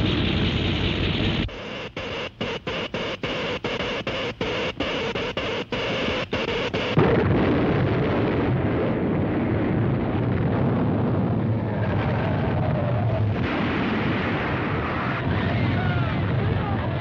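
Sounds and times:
heavy earthquake rumble: 0.0 - 1.5, 7.0 - 17.0
electric crackling: 0.0 - 16.4
sudden loud crash: 13.2 - 15.8.

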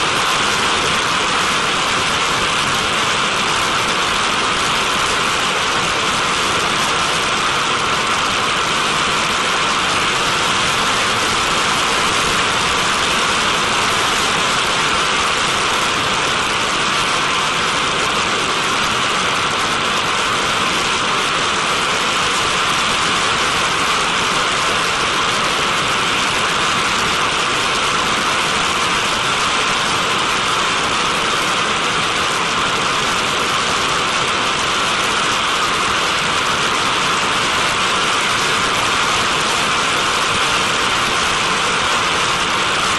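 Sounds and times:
steady rushing noise: 0.0 - 42.9.

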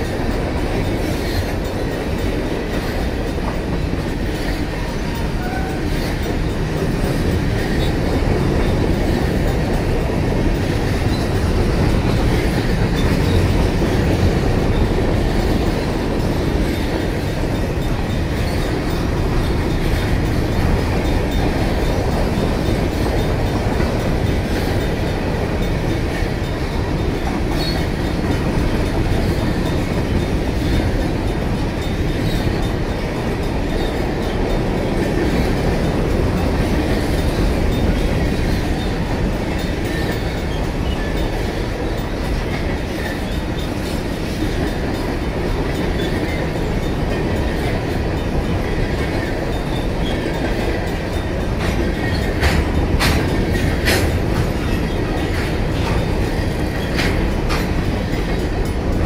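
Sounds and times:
clickety-clack over rail joints: 0.0 - 59.0
train wheels rumbling on rails: 0.0 - 59.0
faint crossing bell ringing: 4.6 - 11.4.

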